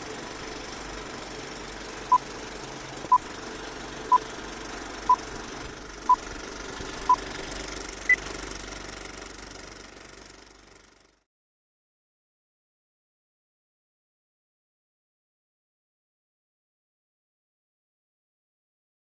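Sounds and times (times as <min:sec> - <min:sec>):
projector-like whirring rattle: 0:00.0 - 0:11.2.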